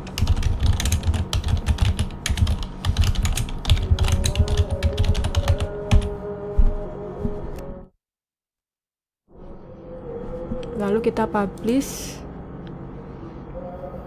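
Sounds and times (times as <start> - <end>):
keyboard typing: 0.0 - 6.1.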